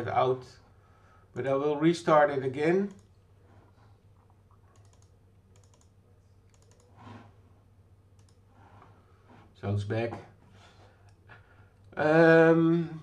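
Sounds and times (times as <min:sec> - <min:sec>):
computer keys clicking: 0:02.8 - 0:03.2, 0:04.5 - 0:07.0, 0:08.1 - 0:08.4.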